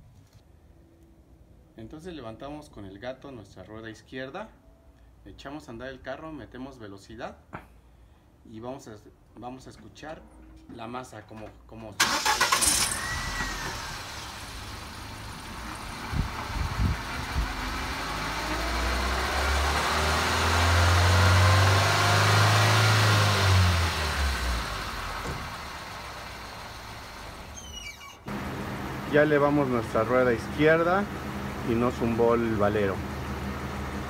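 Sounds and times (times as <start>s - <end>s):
car engine running: 13.2s - 27.6s, 28.3s - 34.0s.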